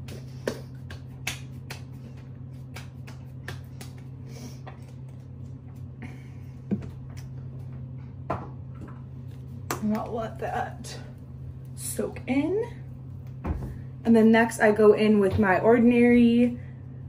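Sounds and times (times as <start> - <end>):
hands patting face: 0.0 - 7.7
steady low hum: 0.0 - 17.0.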